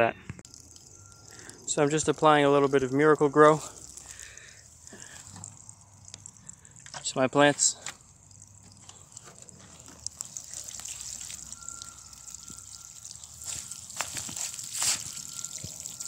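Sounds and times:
watering can spraying on leaves: 9.1 - 16.0.

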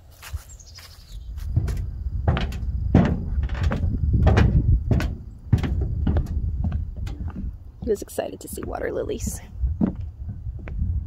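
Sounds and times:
boot footsteps on hollow gangway: 0.0 - 11.0.

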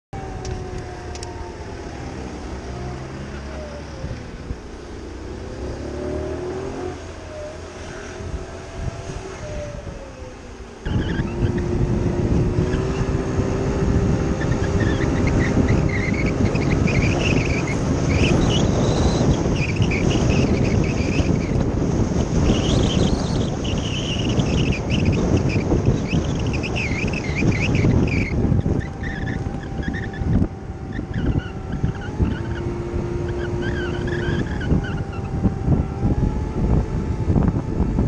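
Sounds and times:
wind noise on microphone: 0.2 - 38.0
scooter engine running: 10.6 - 38.0.

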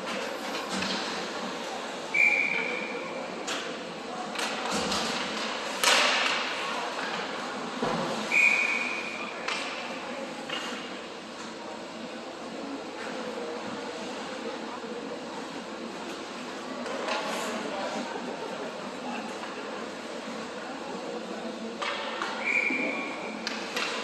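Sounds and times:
high whistle-like tone: 2.2 - 2.8, 8.3 - 9.0.

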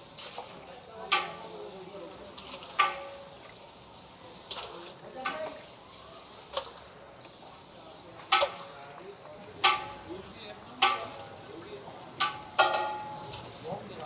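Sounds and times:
meat splashing into hot fat: 0.0 - 7.6, 8.2 - 10.1
steady sizzle: 0.0 - 14.0.

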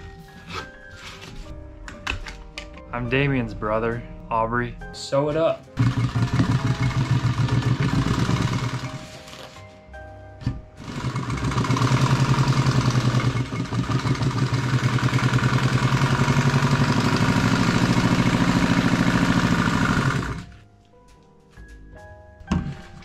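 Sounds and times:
industrial sewing machine stitching: 5.8 - 9.0, 10.8 - 20.5.

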